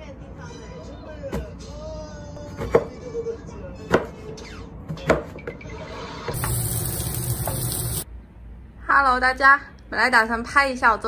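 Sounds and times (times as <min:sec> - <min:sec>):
knife chopping on cutting board: 0:02.5 - 0:02.9, 0:03.9 - 0:04.2
vegetables sizzling in hot oil: 0:06.4 - 0:08.1.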